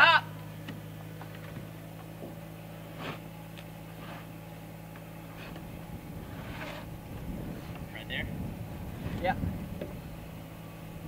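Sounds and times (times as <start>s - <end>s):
tractor engine idling: 0.0s - 11.0s.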